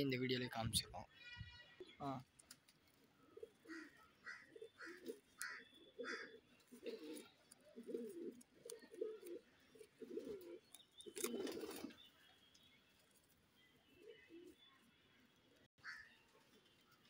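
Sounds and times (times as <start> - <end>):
pigeons cooing: 3.0 - 12.0.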